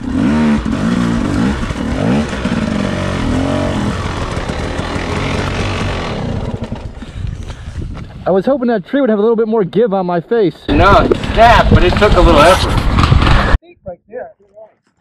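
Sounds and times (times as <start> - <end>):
dirt bike engine revving: 0.0 - 7.2.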